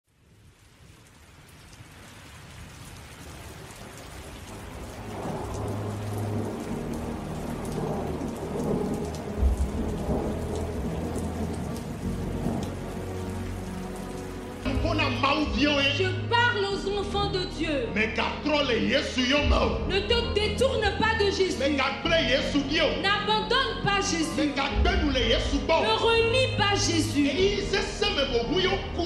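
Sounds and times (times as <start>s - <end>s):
rain: 0.0s - 16.5s, 17.2s - 29.0s
rumbling thunder: 4.2s - 14.0s.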